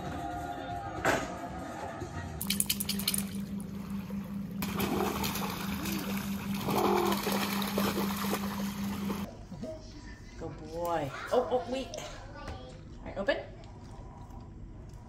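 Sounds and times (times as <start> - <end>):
steady low hum: 2.0 - 10.7
dogs splashing through water: 4.6 - 9.3.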